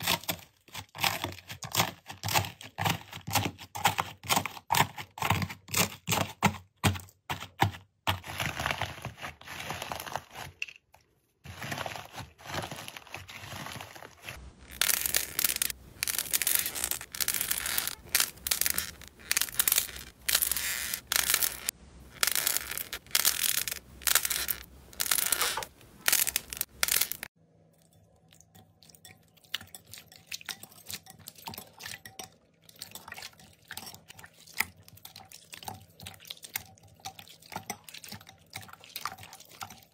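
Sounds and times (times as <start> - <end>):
wet slime squishing in water: 28.2 - 39.9.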